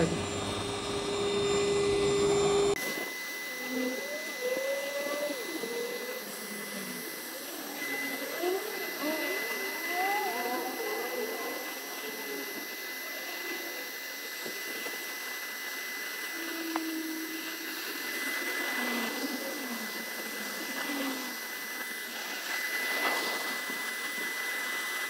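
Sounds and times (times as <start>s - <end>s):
vacuum whining: 0.0s - 25.0s.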